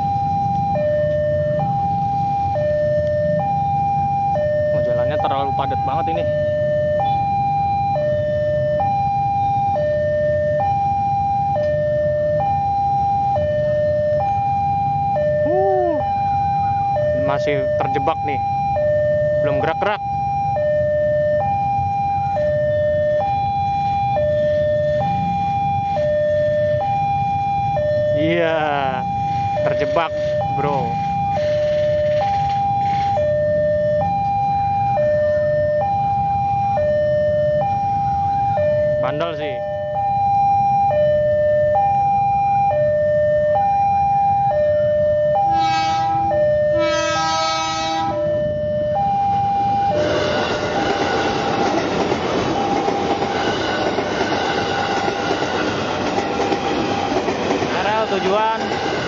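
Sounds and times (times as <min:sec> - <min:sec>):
two-tone level crossing alarm: 0:00.0 - 0:59.0
motorcycle traffic rumble: 0:21.8 - 0:33.6.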